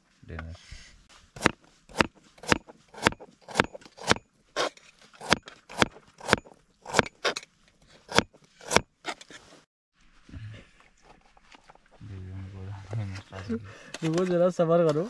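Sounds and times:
knife slicing carrot: 1.4 - 4.2.

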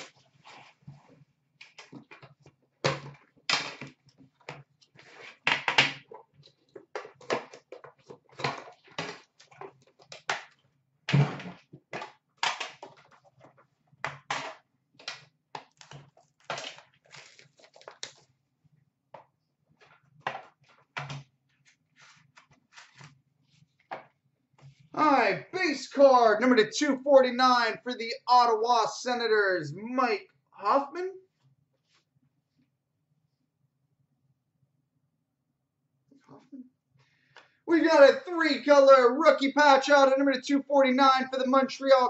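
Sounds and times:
cardboard packaging rustling: 15.8 - 18.3, 19.9 - 23.8
shrink-wrap crinkling: 15.8 - 18.3.

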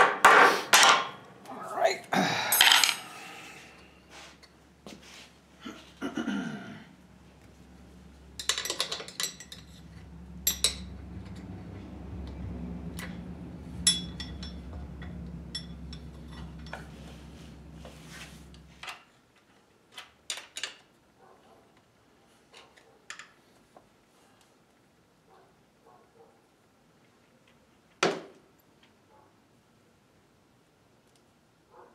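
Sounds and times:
steady low hum: 1.1 - 18.8
metal clinks and knocks: 8.3 - 18.9.

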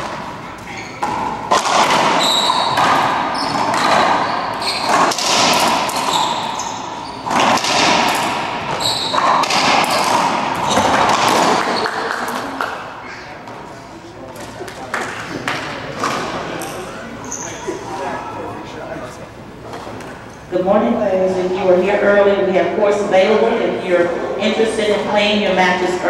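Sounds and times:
shoes squeaking on hardwood floor: 0.4 - 1.1, 2.1 - 5.1, 6.1 - 7.4, 8.7 - 9.4, 15.3 - 17.9
ball cracking off racquets and walls: 1.0 - 12.8.

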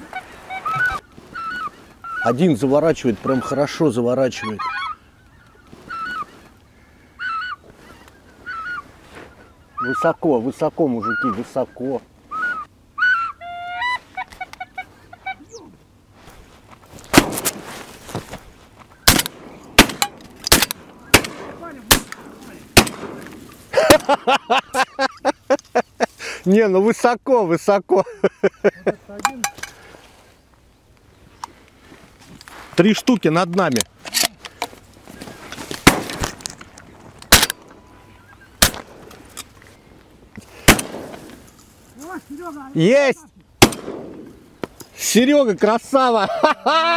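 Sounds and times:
goose calls blown: 0.1 - 2.3, 12.3 - 15.7
quick pitched goose calls: 0.1 - 2.4, 3.2 - 6.5, 7.1 - 10.2, 11.0 - 15.7
shotgun blasts with echo: 19.1 - 23.3, 35.8 - 36.2, 40.6 - 41.2, 43.6 - 44.3.

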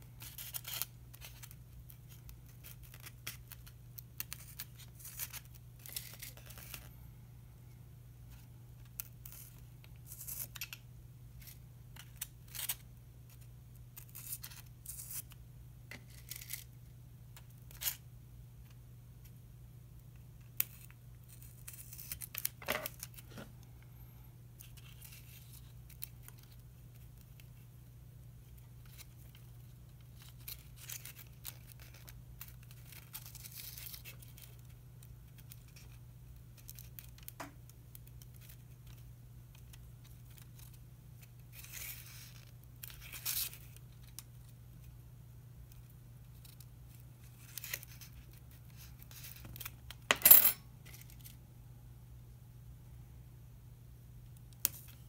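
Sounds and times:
low steady hum: 0.0 - 55.0
paper strips rustling: 28.5 - 36.0.

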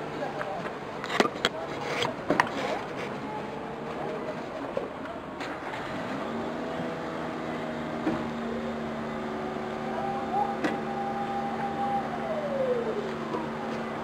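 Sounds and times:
motor-driven sirens wailing: 6.4 - 14.0
higher siren tone: 9.7 - 14.0.

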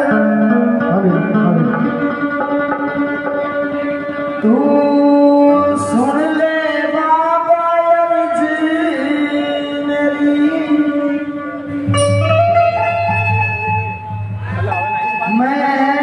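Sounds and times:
keyboard chords: 0.0 - 16.0
woman singing: 4.4 - 11.6, 15.2 - 16.0
hand drum: 11.7 - 15.4.

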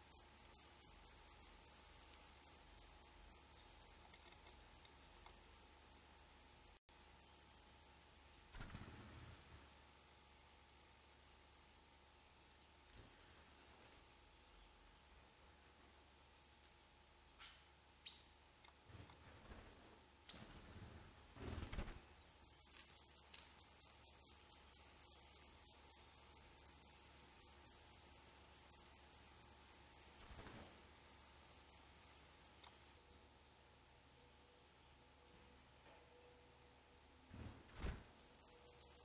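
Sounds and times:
nestlings high chirping: 0.0 - 11.7, 22.2 - 32.9, 38.2 - 39.0.

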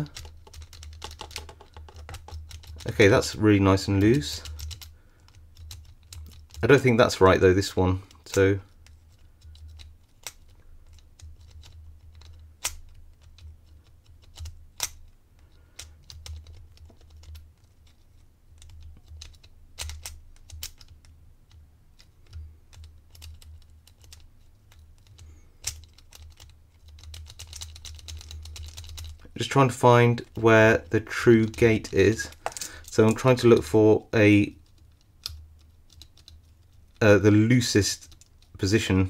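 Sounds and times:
small metallic clicks: 4.0 - 6.8, 8.0 - 29.6, 34.6 - 37.1.

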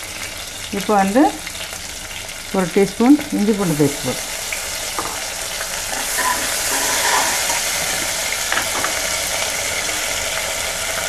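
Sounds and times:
food sizzling in hot oil: 0.0 - 11.0
metal spoon knocking on pan: 5.0 - 5.2, 7.9 - 9.0.

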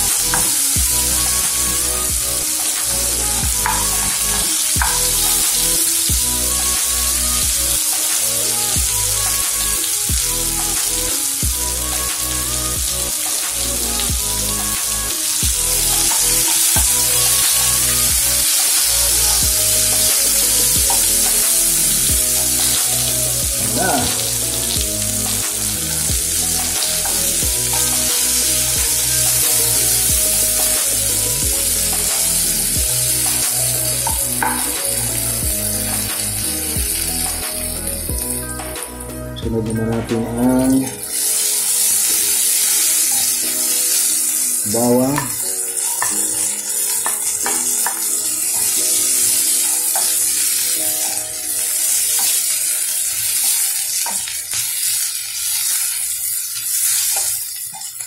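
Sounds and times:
onion sizzling in oil: 0.0 - 39.2, 40.4 - 58.0
background music with beat: 0.0 - 55.6.

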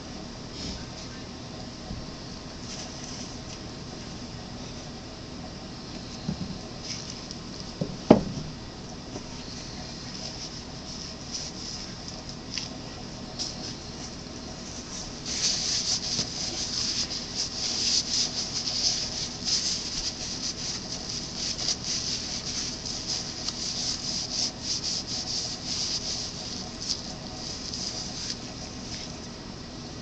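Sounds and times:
scratchy rubbing: 14.6 - 29.1.

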